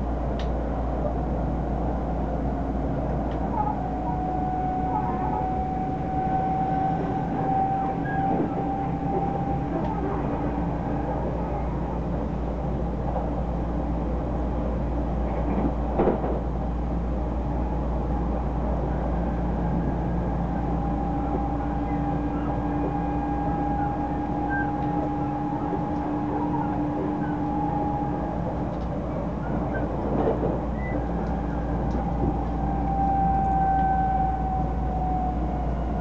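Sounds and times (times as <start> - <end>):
train wheels rumbling on rail: 0.0 - 36.0
two-tone hum: 18.9 - 30.0.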